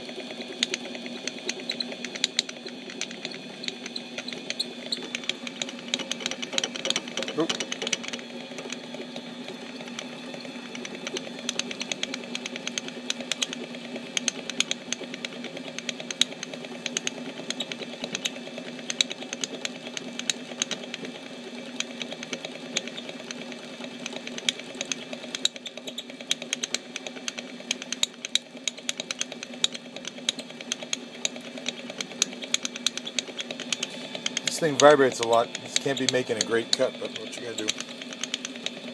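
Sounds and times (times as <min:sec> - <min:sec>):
metal lathe humming: 0:00.0 - 0:38.9
rapid irregular clicking rattle: 0:00.0 - 0:38.9.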